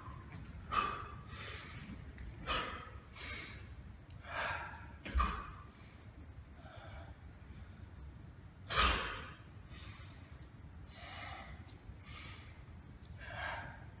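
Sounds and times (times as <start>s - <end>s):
man breathing and exhaling: 0.0s - 7.9s, 8.7s - 14.0s.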